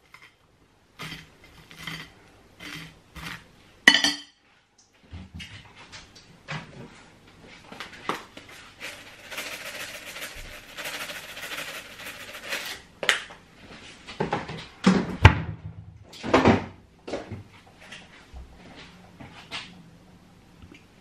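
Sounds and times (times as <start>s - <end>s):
jar of chilli flakes rattling: 8.8s - 12.8s.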